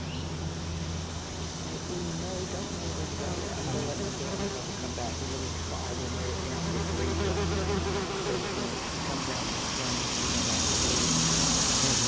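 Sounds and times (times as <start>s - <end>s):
steady hiss: 0.0s - 12.0s
wasp buzzing in flight: 0.0s - 12.0s.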